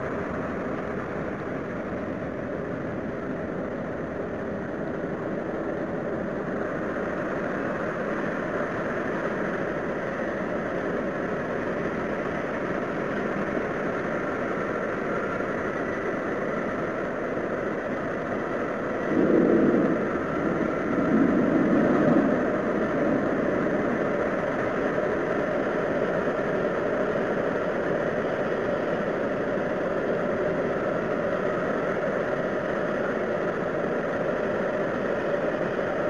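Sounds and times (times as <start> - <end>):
noisy rumbling drone: 0.0 - 36.0.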